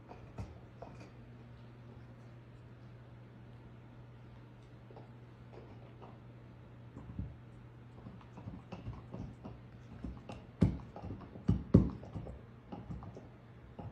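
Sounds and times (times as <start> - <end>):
steady low hum: 0.0 - 13.9.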